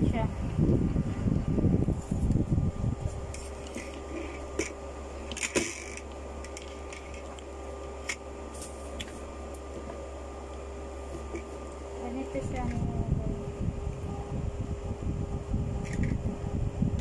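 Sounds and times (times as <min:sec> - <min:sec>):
steady low hum: 0:00.0 - 0:17.0.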